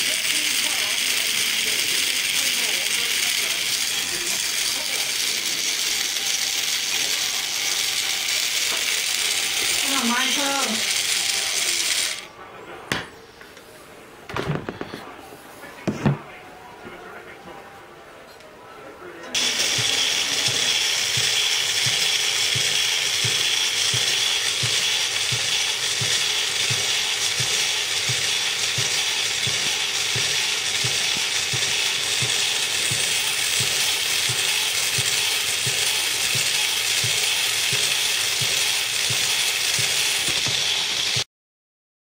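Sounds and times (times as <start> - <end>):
small electric motor whine: 0.0 - 12.3, 19.4 - 41.3.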